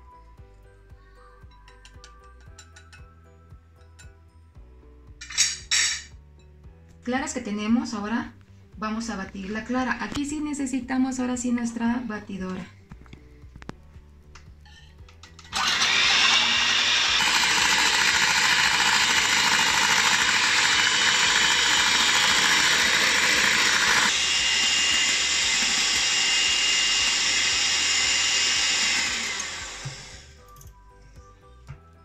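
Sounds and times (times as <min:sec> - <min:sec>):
electric hand mixer whirring: 0:15.5 - 0:30.4.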